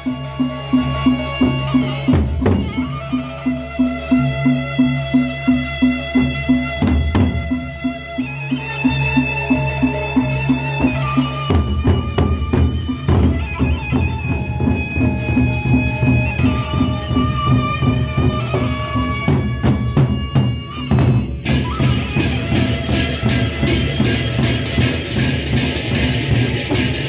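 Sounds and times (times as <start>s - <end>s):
crashing cymbals: 0.0s - 27.0s
large drums beaten with sticks: 6.2s - 7.8s, 10.9s - 27.0s.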